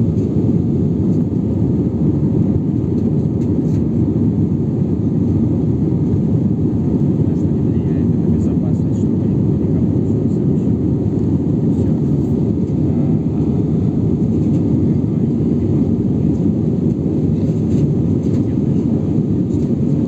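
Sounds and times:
airplane cabin engine rumble: 0:00.0 - 0:20.0.

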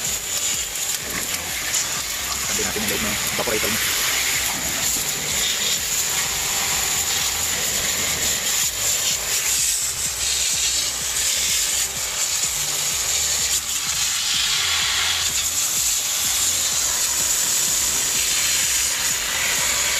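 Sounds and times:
hose spraying water jet: 0:00.0 - 0:19.9.

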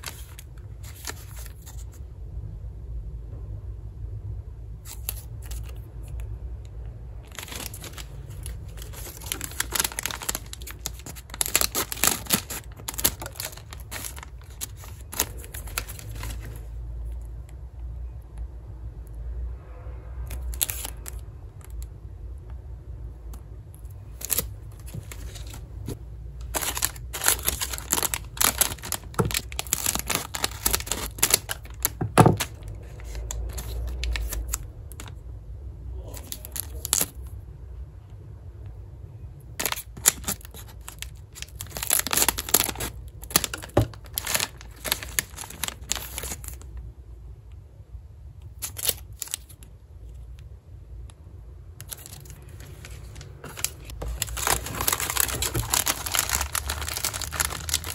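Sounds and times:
plastic wrappers crinkling and tearing: 0:00.0 - 0:01.9, 0:07.2 - 0:17.2, 0:20.3 - 0:21.8, 0:23.8 - 0:35.2, 0:36.1 - 0:37.3, 0:39.6 - 0:46.7, 0:48.5 - 0:49.7, 0:51.8 - 0:57.9.

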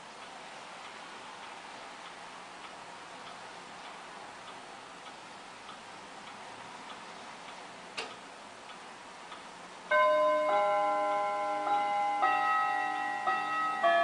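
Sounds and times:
clock ticking: 0:00.0 - 0:14.0
clock click: 0:00.2 - 0:10.5
clock chime bell notes: 0:09.9 - 0:14.0.

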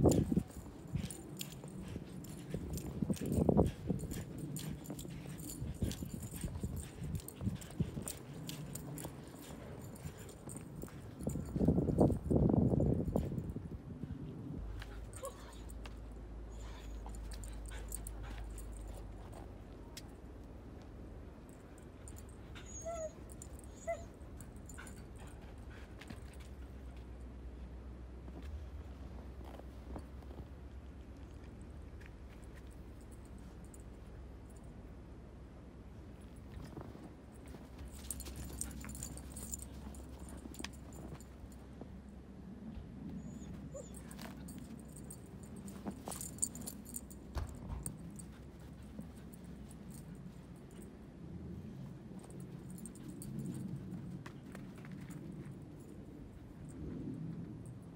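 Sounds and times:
puppy whimpering: 0:22.6 - 0:24.1, 0:43.2 - 0:44.4.

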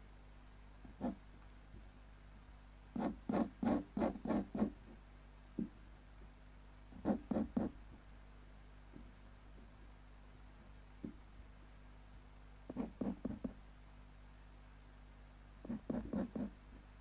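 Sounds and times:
pen nib scratching paper: 0:01.0 - 0:01.2, 0:03.0 - 0:04.8, 0:07.0 - 0:07.8, 0:12.7 - 0:13.6, 0:15.6 - 0:16.6.

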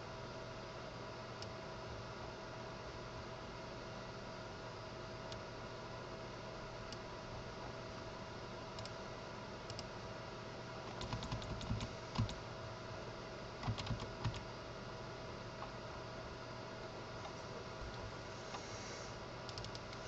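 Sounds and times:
steady hum and hiss: 0:00.0 - 0:20.0
computer keyboard keystrokes: 0:10.9 - 0:12.4, 0:13.6 - 0:14.4, 0:19.5 - 0:20.0.

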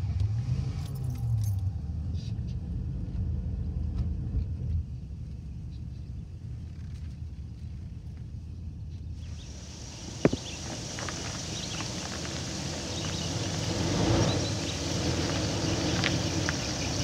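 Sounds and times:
car engine and tyre rumble: 0:00.0 - 0:17.0
outdoor ambience hiss: 0:04.9 - 0:17.0.

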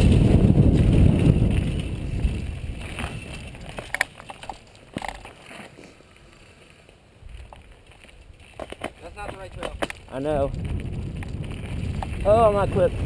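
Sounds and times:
wind rush: 0:00.0 - 0:03.8, 0:09.4 - 0:13.0
bike clicks and rattles: 0:00.0 - 0:13.0
bike tyre rumble on dirt: 0:00.0 - 0:13.0.

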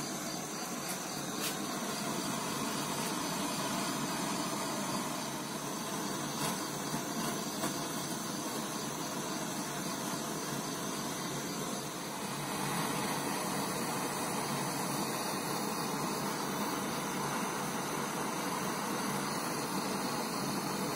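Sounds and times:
butane torch hissing flame: 0:00.0 - 0:20.9.

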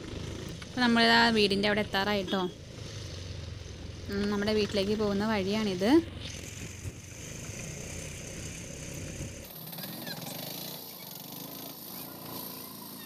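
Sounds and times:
autorickshaw engine running: 0:00.0 - 0:13.0.

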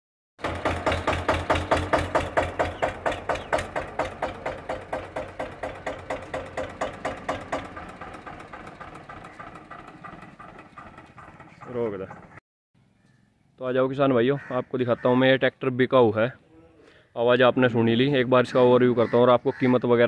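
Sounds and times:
tractor diesel engine idling: 0:00.4 - 0:12.4.

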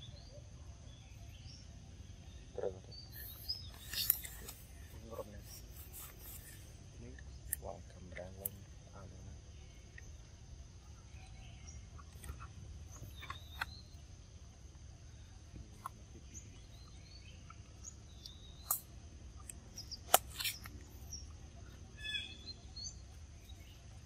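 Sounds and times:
birds chirping: 0:00.0 - 0:24.0
outdoor background noise: 0:00.0 - 0:24.0.

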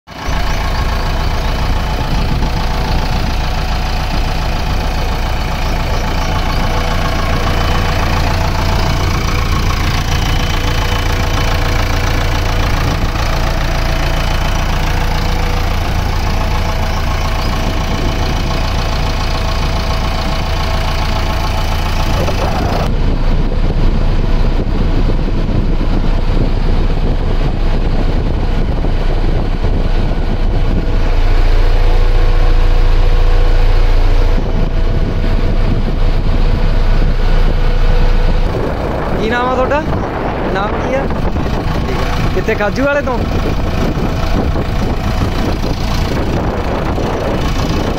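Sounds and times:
diesel engine idling: 0:00.1 - 0:47.9.

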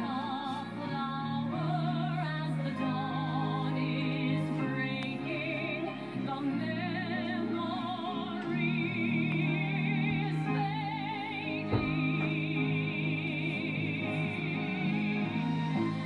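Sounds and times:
musical accompaniment: 0:00.0 - 0:16.0
woman singing with vibrato: 0:00.0 - 0:16.0.

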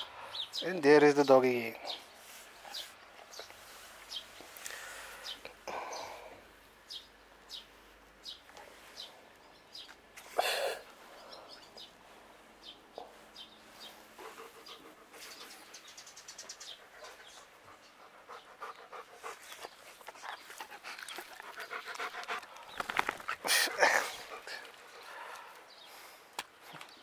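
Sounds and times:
dog panting: 0:13.9 - 0:25.8.

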